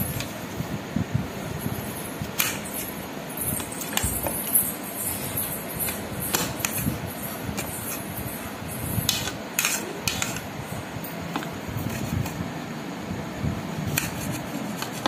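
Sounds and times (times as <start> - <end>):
knife cutting apple: 6.3 - 7.0, 9.1 - 10.5, 13.9 - 15.0.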